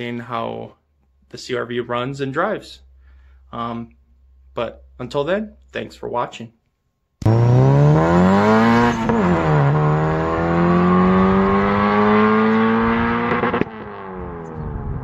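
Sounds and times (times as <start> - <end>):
car engine accelerating hard: 7.2 - 15.0.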